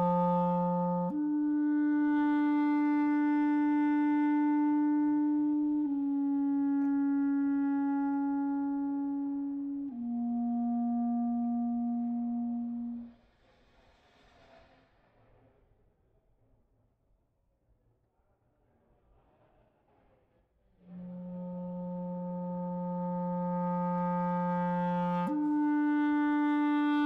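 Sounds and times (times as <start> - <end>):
clarinet long held notes: 0.0 - 13.2, 20.8 - 27.0.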